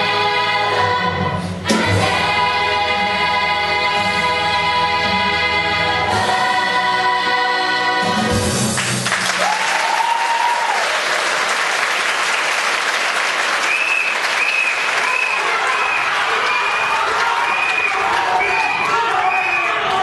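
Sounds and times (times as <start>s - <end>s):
audience applause: 8.8s - 20.0s
cheering and whistling: 9.3s - 12.6s, 13.4s - 20.0s.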